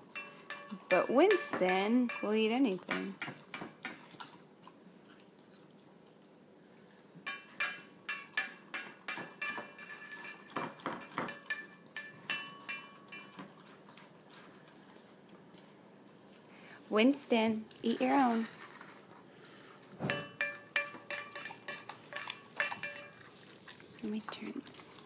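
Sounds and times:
metal dog bowls clinking: 0.0 - 3.1, 7.1 - 13.4, 20.0 - 23.3.

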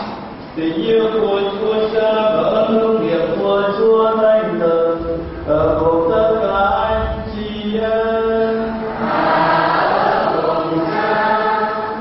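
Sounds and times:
man chanting a prayer: 0.6 - 8.9.

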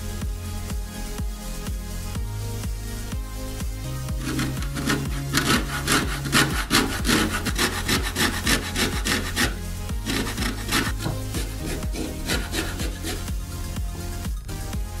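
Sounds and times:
background music: 0.0 - 15.0
lime rasping on grater: 4.2 - 13.3.

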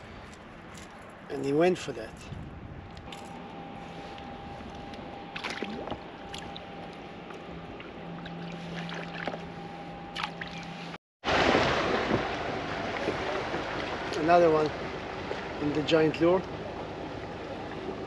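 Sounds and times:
faint steady hum: 0.0 - 11.0
rush of wind and water: 0.0 - 18.0.

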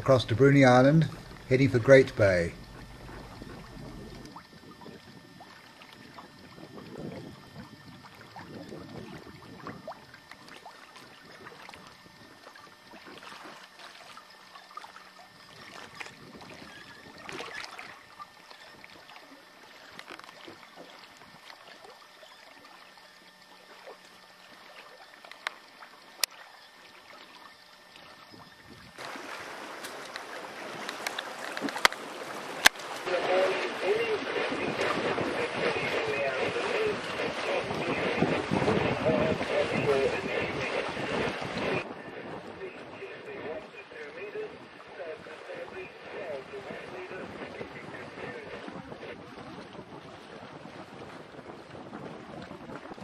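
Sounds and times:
water splashing along hull: 0.0 - 53.0
loud steady hiss: 29.0 - 41.9.

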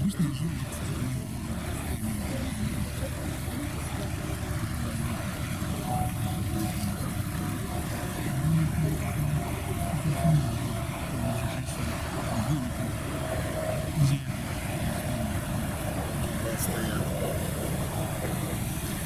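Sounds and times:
faint thin whine: 0.0 - 19.0
propeller wash churning: 0.0 - 19.0
ship engines rumbling: 0.0 - 19.0.

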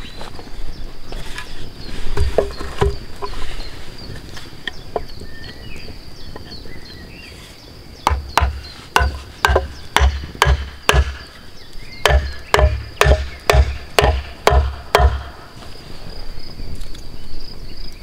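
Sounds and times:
wooden mallet knocking wedges: 8.0 - 11.4, 12.0 - 15.4.

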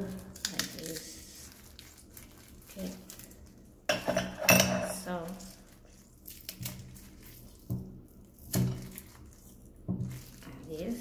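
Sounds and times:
person speaking: 10.5 - 11.0.

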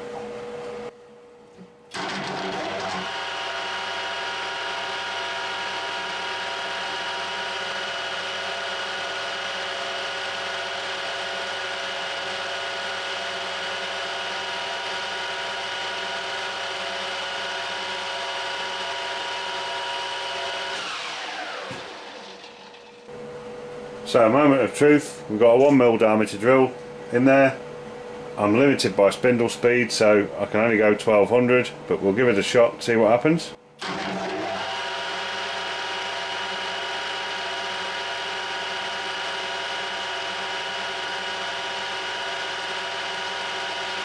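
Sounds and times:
metal lathe motor whine: 1.9 - 24.0, 33.8 - 44.0.

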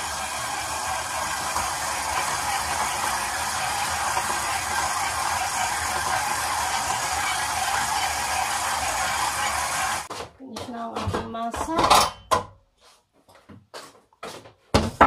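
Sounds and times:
stand mixer kneading dough: 0.0 - 10.1.

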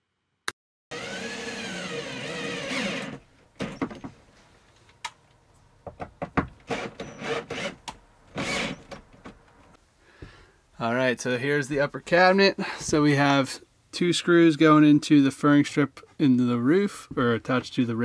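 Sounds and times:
cordless drill driving screws: 0.9 - 3.8, 6.7 - 8.9.

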